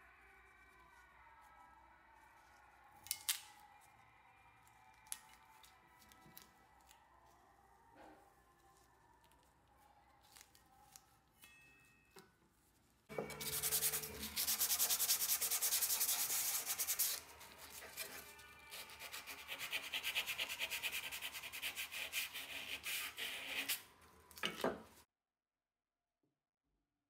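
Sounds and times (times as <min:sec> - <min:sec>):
rubbing on steel trowel blade: 0:13.2 - 0:23.9.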